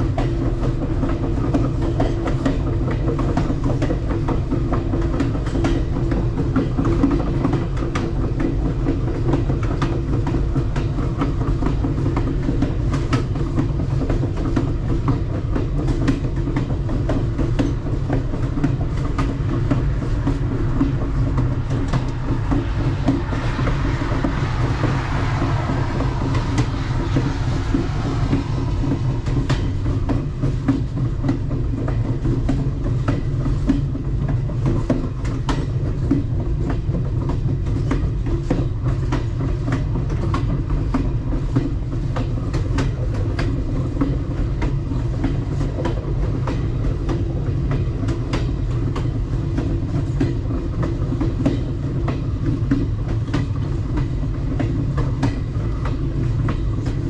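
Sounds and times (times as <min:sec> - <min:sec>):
train cars rumbling: 0:00.0 - 0:42.5.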